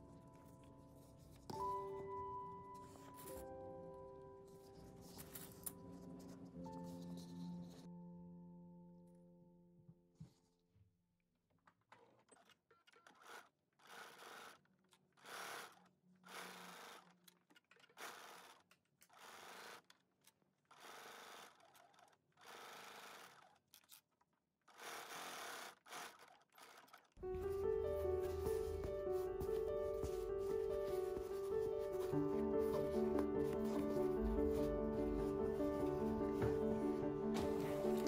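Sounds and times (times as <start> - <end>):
sewing machine stitching: 12.0 - 24.1, 24.7 - 27.2.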